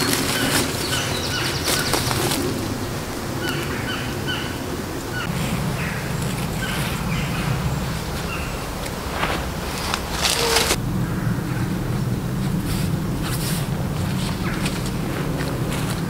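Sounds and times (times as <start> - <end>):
tarp and cord rustling: 0.0 - 3.4, 7.8 - 10.8
bird chirping rapidly: 0.0 - 8.8.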